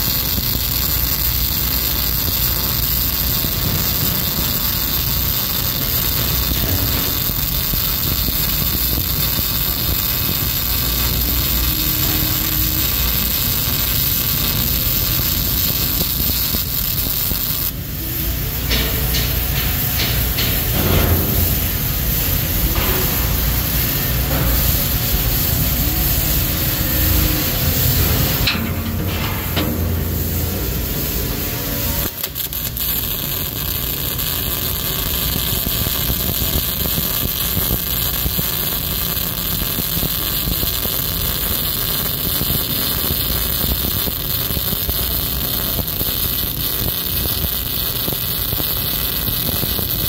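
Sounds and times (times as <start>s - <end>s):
welding arc hissing and crackling: 0.0s - 50.0s.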